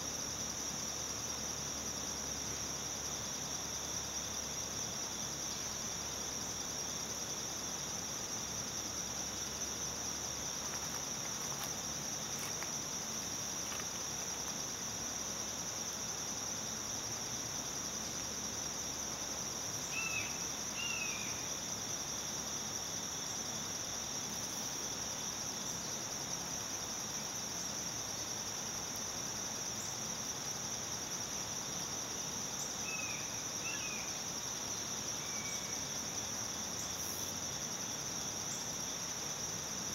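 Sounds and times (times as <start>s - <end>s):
high-pitched insect chorus: 0.0s - 39.9s.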